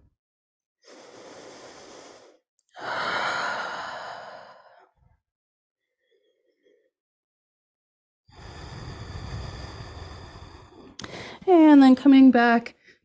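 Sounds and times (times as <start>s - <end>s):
woman breathing: 0.8s - 5.2s, 8.3s - 11.5s.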